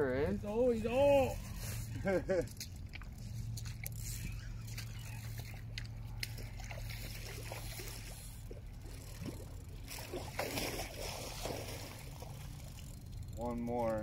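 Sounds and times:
low hum: 0:00.0 - 0:14.0
water noise: 0:00.0 - 0:14.0
spinning reel being worked: 0:12.5 - 0:14.0.

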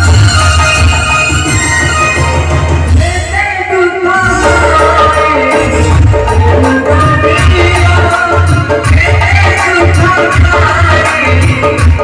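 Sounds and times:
person singing: 0:02.9 - 0:12.0.

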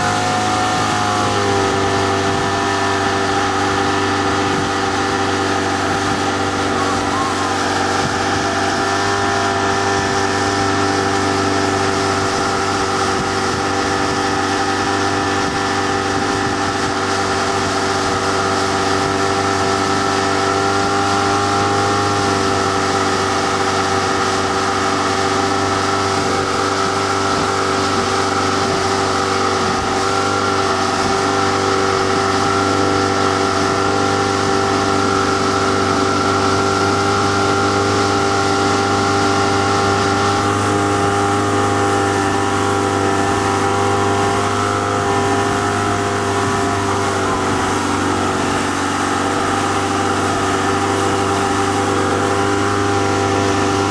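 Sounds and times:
motorboat engine drone: 0:00.0 - 0:53.9
wake water rushing: 0:00.0 - 0:53.9.

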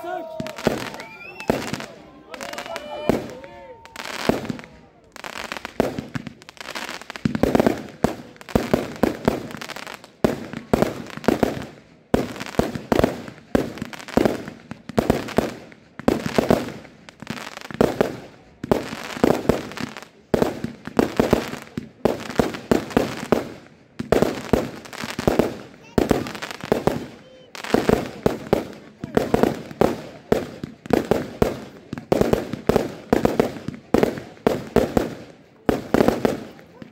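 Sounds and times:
fireworks launching and bursting: 0:00.0 - 0:36.9.

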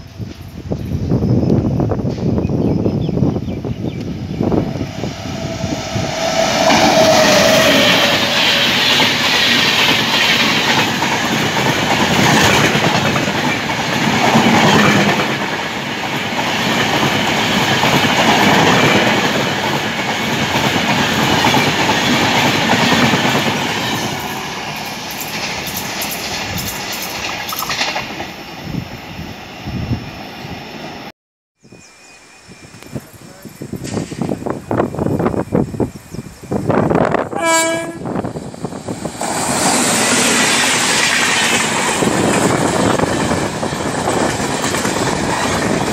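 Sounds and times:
train wheels rushing on rail: 0:00.0 - 0:31.1, 0:32.7 - 0:45.9
clickety-clack over rail joints: 0:06.6 - 0:28.4, 0:33.8 - 0:34.4, 0:39.1 - 0:45.9.

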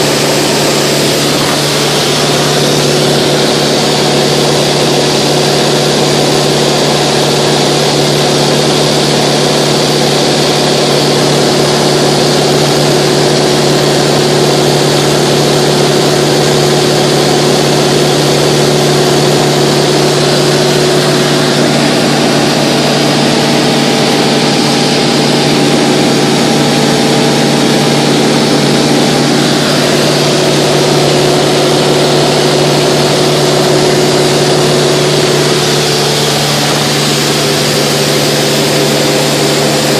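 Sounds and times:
airplane engine cabin drone: 0:00.0 - 0:05.2, 0:19.8 - 0:39.9.

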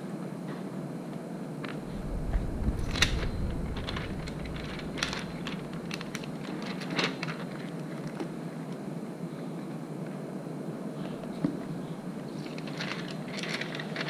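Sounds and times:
steady background hum: 0:01.6 - 0:08.6, 0:10.4 - 0:14.0
soft low bump: 0:01.8 - 0:06.7.

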